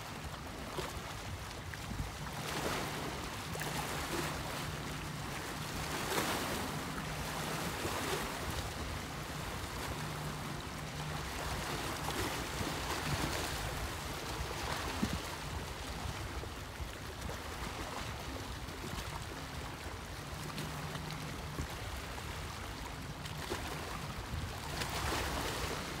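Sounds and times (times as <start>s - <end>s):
wind on microphone: 0.0s - 3.5s, 6.0s - 20.0s
waves lapping on rocks: 0.0s - 22.6s, 23.2s - 26.0s.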